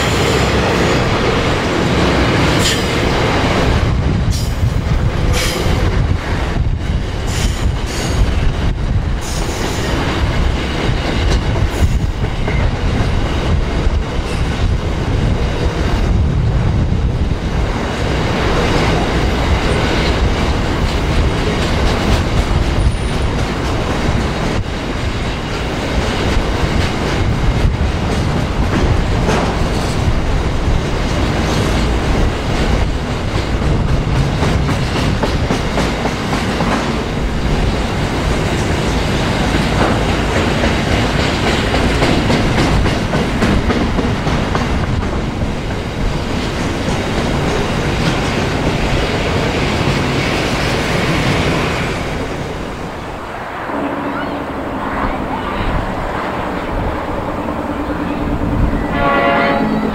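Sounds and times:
train wheels on rails: 0.0s - 59.9s.

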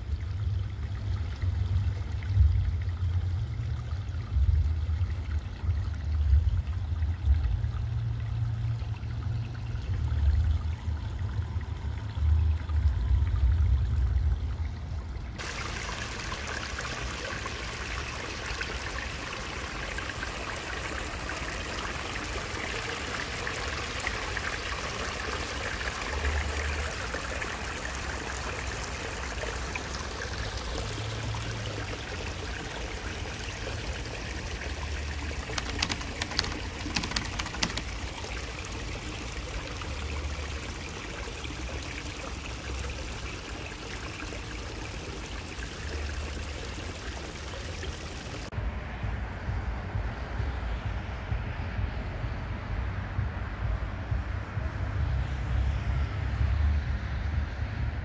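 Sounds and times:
creek water running: 0.0s - 48.5s.

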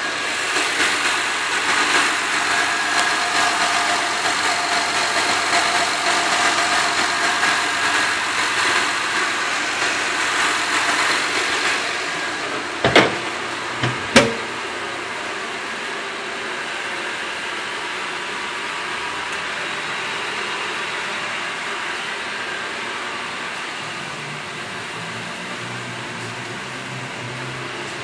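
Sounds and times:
hiss: 0.0s - 13.3s
sharp knocks: 13.8s - 14.5s.

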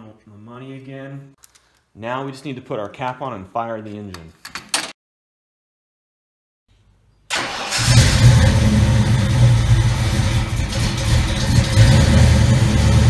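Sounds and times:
car engine starting and running: 7.3s - 13.0s.

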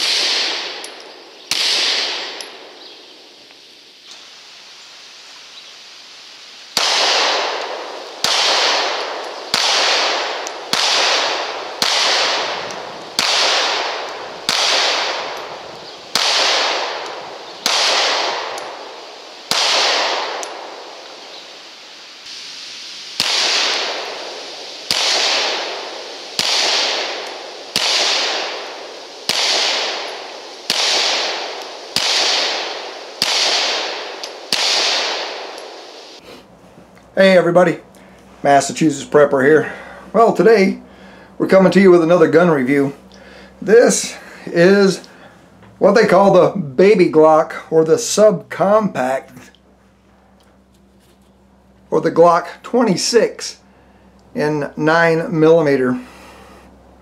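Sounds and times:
pistol shots: 0.0s - 2.8s, 6.7s - 21.2s, 23.1s - 36.2s.

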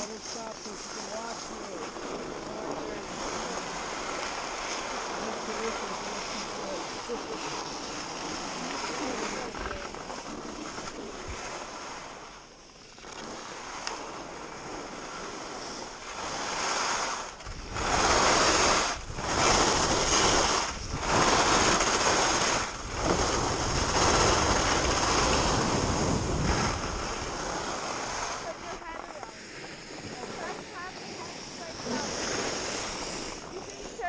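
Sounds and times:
skis sliding on snow: 0.0s - 34.0s
wind on microphone: 13.2s - 34.0s.

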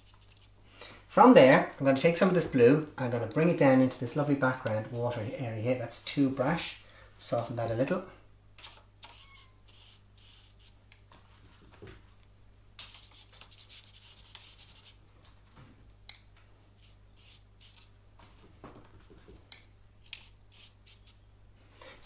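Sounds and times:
brush scratching across paper: 0.0s - 0.6s, 8.6s - 11.7s, 12.9s - 15.0s, 16.8s - 18.0s, 20.0s - 21.2s.

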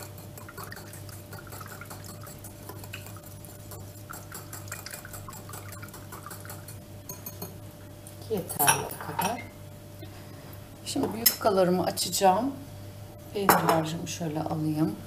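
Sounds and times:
liquid sloshing: 0.0s - 7.4s
metal whisk ticking against bowl: 0.0s - 7.5s.

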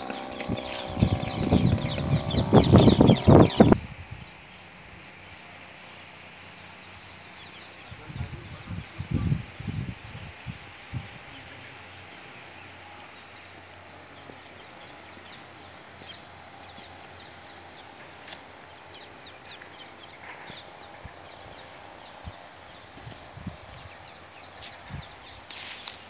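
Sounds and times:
high bird chirps: 0.0s - 4.5s
faint steady hiss: 3.8s - 26.0s.

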